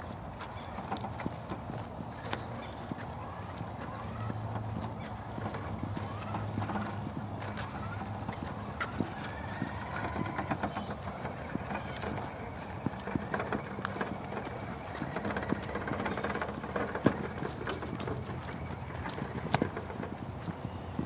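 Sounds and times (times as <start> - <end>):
electric motor whining: 5.7 - 17.6.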